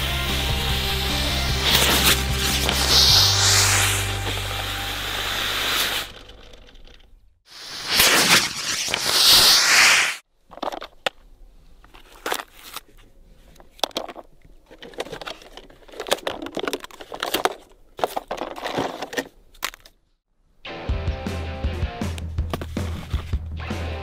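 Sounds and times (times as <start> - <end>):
firework rockets hissing: 0.0 - 6.2, 7.5 - 10.2
plastic toy car handled on asphalt: 1.6 - 7.2, 10.4 - 20.2, 22.4 - 23.4.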